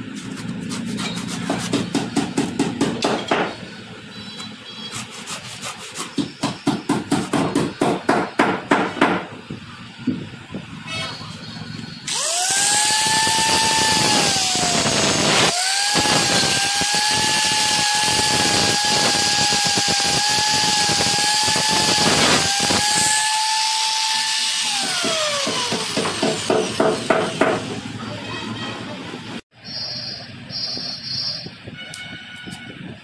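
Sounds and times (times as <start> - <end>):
grinder spinning down: 12.1 - 26.5
angle grinder on metal: 12.1 - 27.8.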